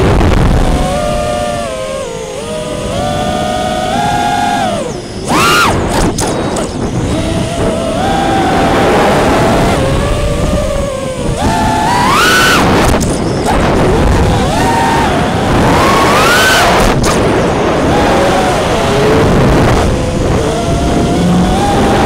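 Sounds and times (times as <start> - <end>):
drone motors whining: 0.0 - 22.0
wind noise on microphone: 0.0 - 22.0.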